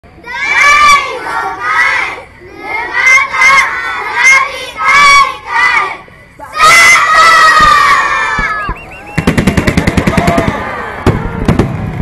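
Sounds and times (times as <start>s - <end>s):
children shouting together: 0.3s - 8.7s.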